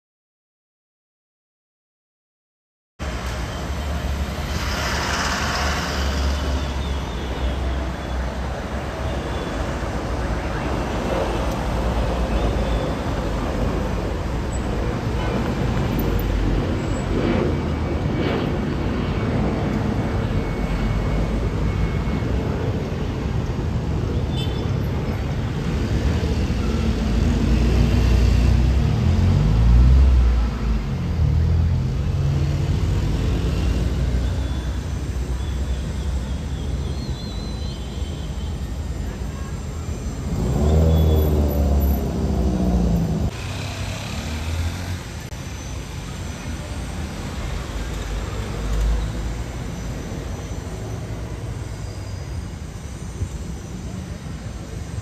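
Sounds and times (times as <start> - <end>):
jet airliner rumbling overhead: 3.1 - 36.9.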